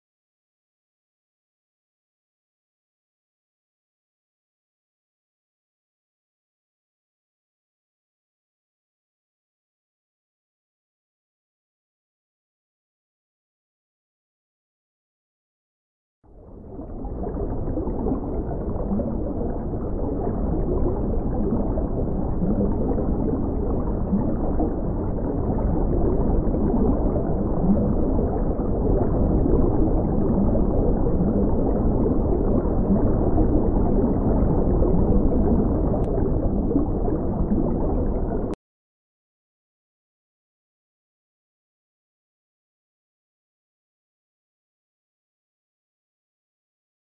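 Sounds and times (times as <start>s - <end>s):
muffled underwater water noise: 16.3s - 38.6s.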